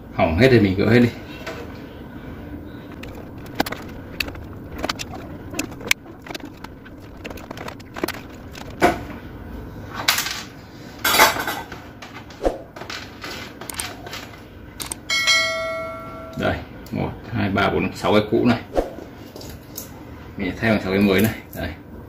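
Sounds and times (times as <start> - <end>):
metal tools clicking on circuit board: 14.8 - 15.1.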